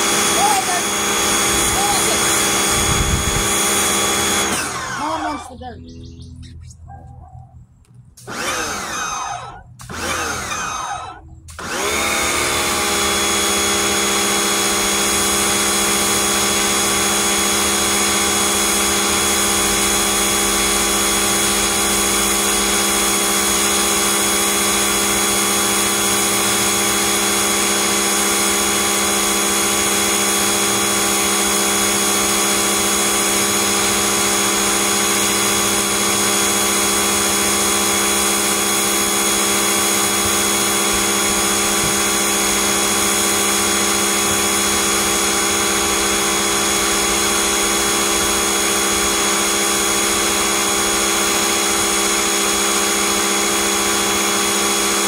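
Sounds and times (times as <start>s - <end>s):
pressure washer whine: 0.0s - 6.4s, 7.9s - 55.0s.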